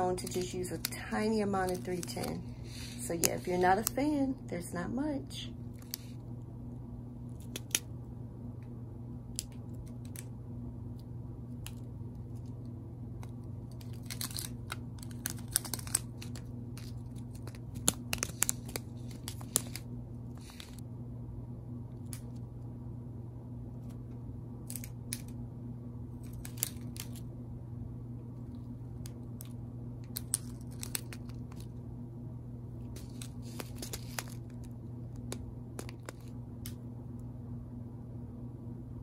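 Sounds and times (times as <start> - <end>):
steady low hum: 0.0 - 39.0
plastic bags crinkling: 0.1 - 3.9, 13.7 - 19.8, 30.1 - 31.7, 33.0 - 34.7.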